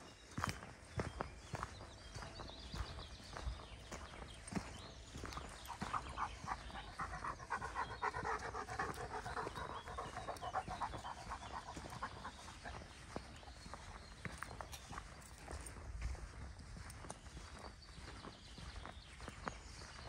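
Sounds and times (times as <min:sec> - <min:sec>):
footsteps crunching on dirt path: 0:00.0 - 0:20.0
dog panting: 0:05.2 - 0:14.5.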